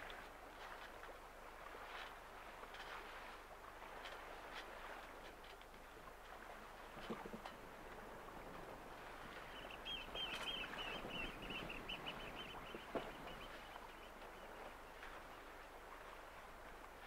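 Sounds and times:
water and wind around yacht: 0:00.0 - 0:17.0.

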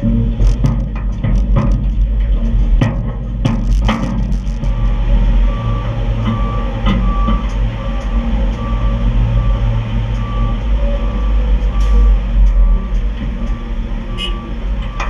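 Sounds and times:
diesel machinery rumbling: 0:00.0 - 0:15.0
backup alarm beeping: 0:04.3 - 0:15.0.

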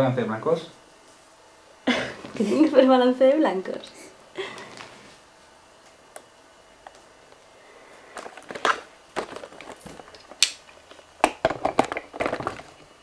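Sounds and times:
camera handling rustles and clicks: 0:08.2 - 0:11.0.

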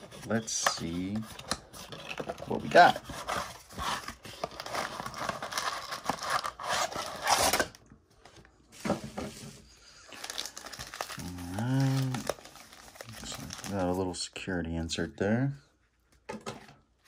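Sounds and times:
cardboard rustling and scraping: 0:00.0 - 0:07.7, 0:08.3 - 0:09.7.

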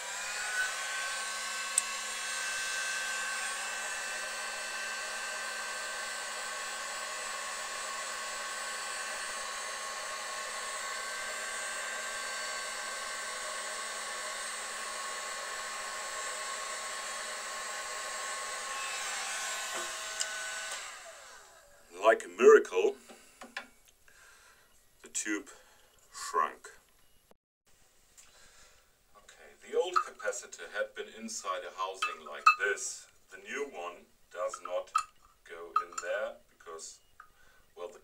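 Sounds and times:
heat gun blowing: 0:00.0 - 0:21.9.

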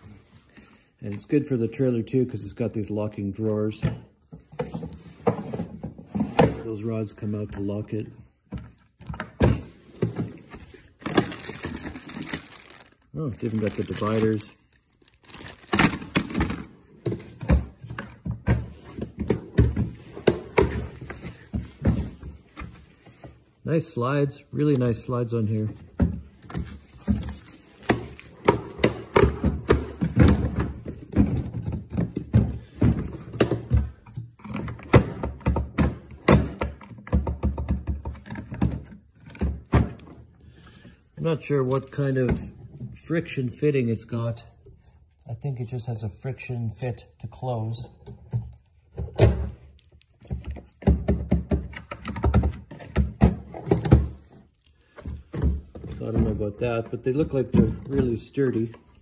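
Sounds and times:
plastic drawers knocking shut: 0:09.0 - 0:14.4.

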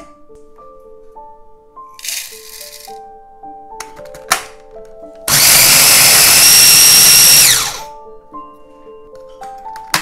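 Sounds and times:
food processor motor grinding: 0:05.3 - 0:07.9.

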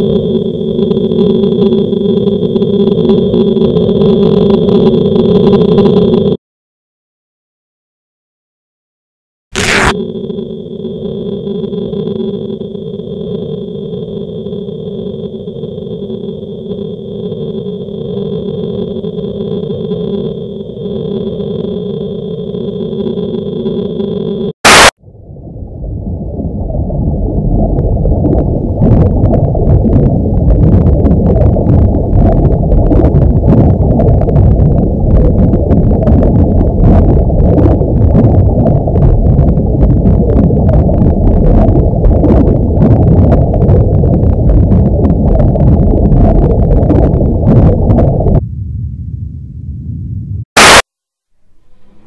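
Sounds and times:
muffled low rumbling: 0:11.2 - 0:50.8.

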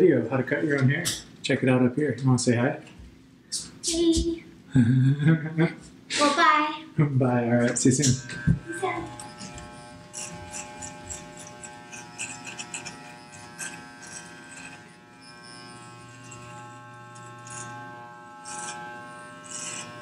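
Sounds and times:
blades crackling through hair: 0:07.6 - 0:20.0
electric hair clipper buzzing: 0:07.6 - 0:20.0.

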